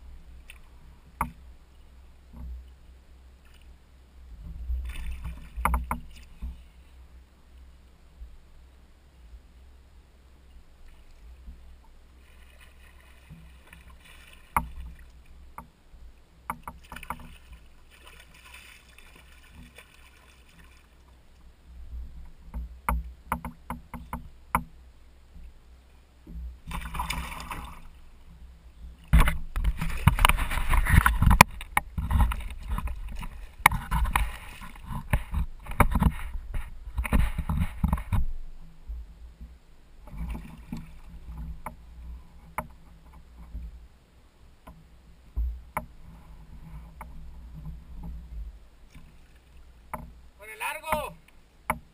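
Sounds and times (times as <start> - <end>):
clicks and knocks on kayak: 0.5 - 1.4, 4.4 - 6.6, 14.5 - 15.7, 16.4 - 17.6, 22.2 - 24.7, 29.0 - 38.3, 42.4 - 43.8, 44.6 - 49.1, 49.9 - 50.2, 50.8 - 51.9
fish splashing: 12.2 - 15.3, 16.7 - 21.1, 26.7 - 28.1.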